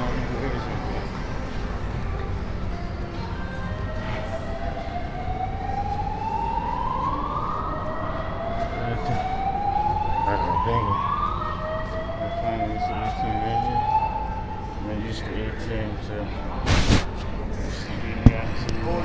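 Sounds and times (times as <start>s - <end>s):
fire alarm whoop tone: 3.8s - 14.5s.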